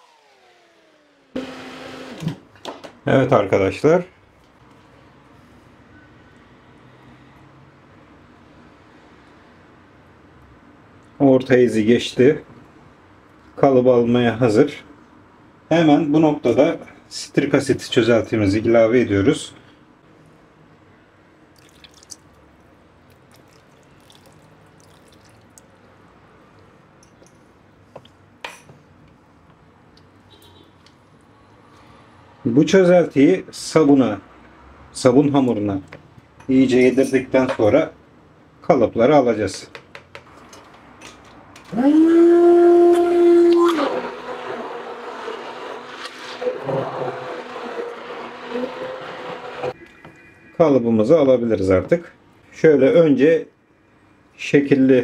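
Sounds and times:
stick blender motor whirring: 0.0 - 2.4, 41.7 - 49.8
liquid trickling faintly: 21.5 - 22.5, 23.1 - 26.7
small drips and ticks: 21.6 - 22.3, 23.1 - 25.9.

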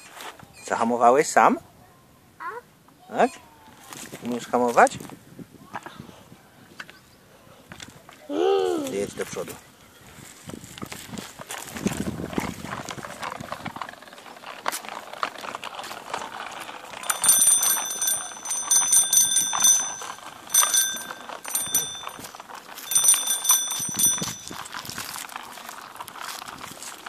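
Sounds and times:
bike rattling on asphalt: 9.0 - 27.0
bicycle bell trills: 16.9 - 25.3.

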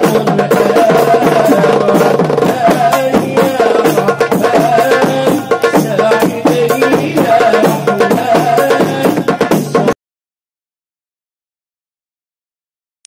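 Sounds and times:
hand drum played fast: 0.0 - 10.0.

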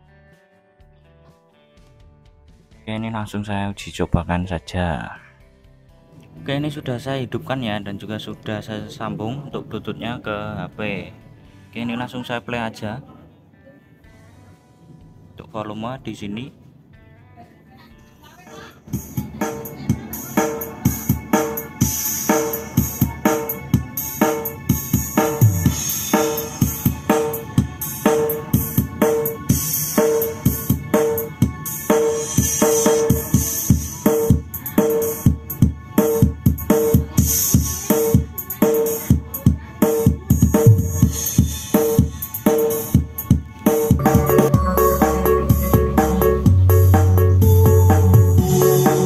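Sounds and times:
music with drum beat: 0.0 - 3.1, 18.8 - 49.0.

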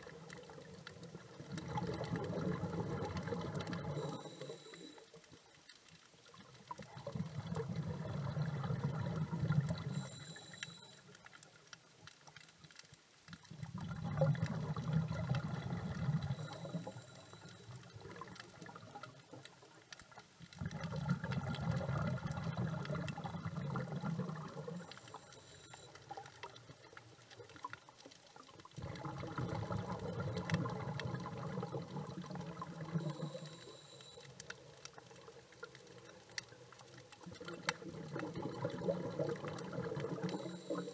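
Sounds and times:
bubbling exhaled air underwater: 0.0 - 4.8, 6.7 - 10.8, 13.5 - 19.5, 20.6 - 27.7, 28.6 - 34.2, 35.0 - 40.9.

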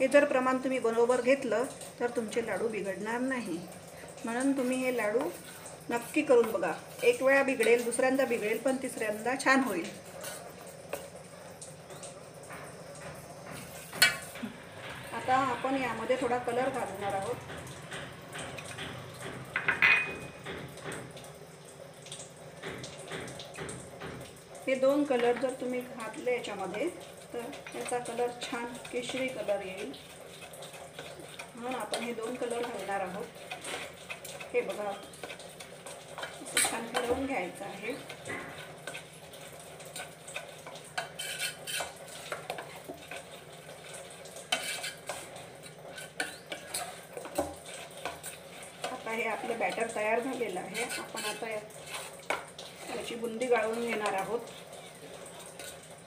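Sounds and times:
soft scraping of stirring batter: 0.1 - 14.6, 24.8 - 56.0
spoon clinking against glass bowl: 19.6 - 20.4.

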